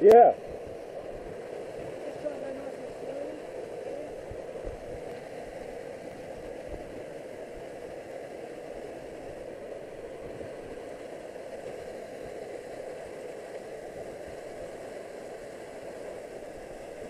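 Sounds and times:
waterfall roaring: 2.0 - 7.8.

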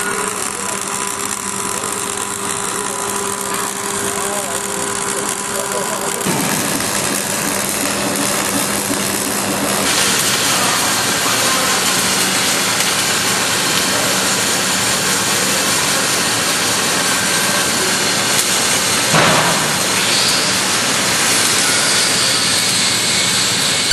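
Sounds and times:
welding arc hissing: 0.0 - 23.9.

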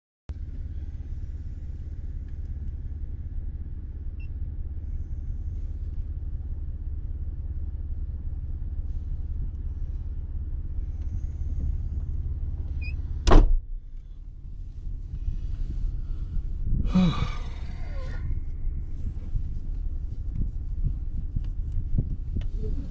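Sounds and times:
engine idling low rumble: 0.3 - 22.9
loud thump: 13.2 - 13.7.

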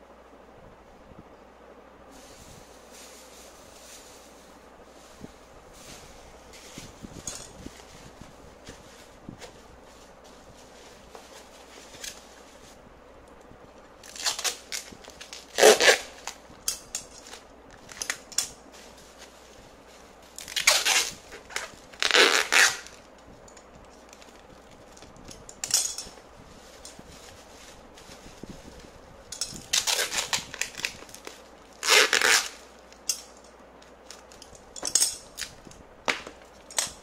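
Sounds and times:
bubble wrap crinkling: 2.2 - 12.8, 13.9 - 37.0
packing tape ripping: 14.0 - 16.4, 20.4 - 23.0, 29.6 - 33.1.

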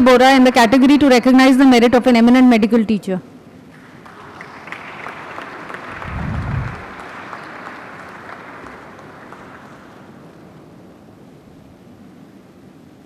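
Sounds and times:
audience applauding: 3.7 - 10.8.

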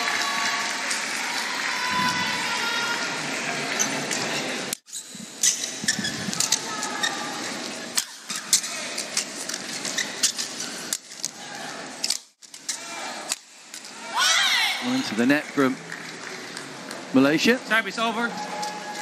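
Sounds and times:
indoor arena crowd noise: 0.0 - 19.0
shoes squeaking on court: 3.7 - 11.4.

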